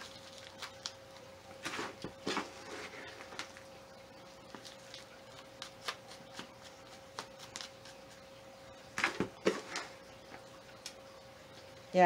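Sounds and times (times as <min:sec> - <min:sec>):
potting mix scooped and poured: 0:01.6 - 0:03.6.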